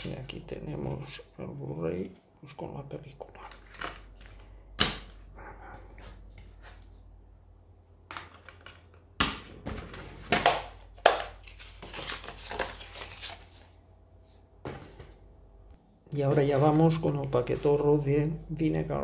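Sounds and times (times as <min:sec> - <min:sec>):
packaging crinkling: 0:11.0 - 0:13.7.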